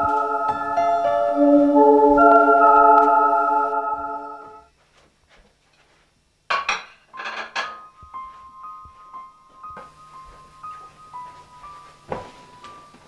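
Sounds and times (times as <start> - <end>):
faint high music notes: 0.0 - 4.7, 7.8 - 13.0
sustained music chord: 0.0 - 4.7
crockery clinking: 6.5 - 8.0.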